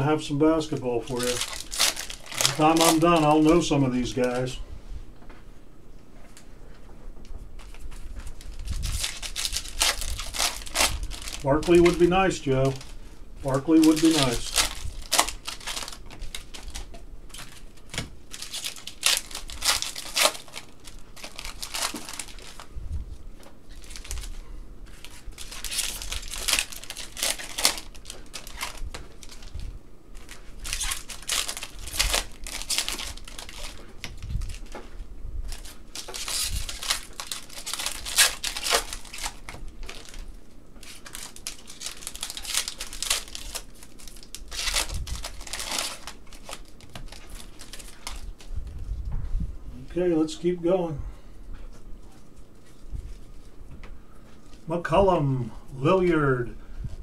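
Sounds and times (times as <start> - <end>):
crinkling wrappers torn open: 0.6 - 4.6, 7.6 - 22.7, 23.4 - 48.5.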